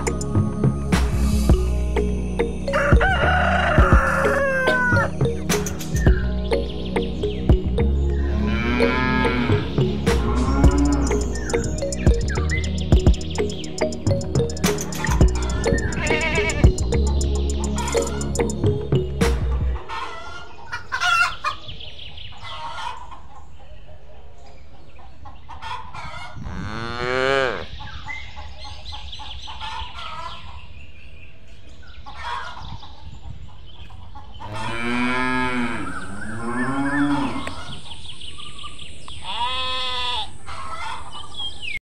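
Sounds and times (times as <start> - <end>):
chickens clucking: 2.8 - 26.5, 27.7 - 30.8, 31.9 - 35.3, 40.4 - 41.8
cows mooing: 8.2 - 11.6, 15.3 - 16.7, 26.4 - 27.7, 34.5 - 37.8.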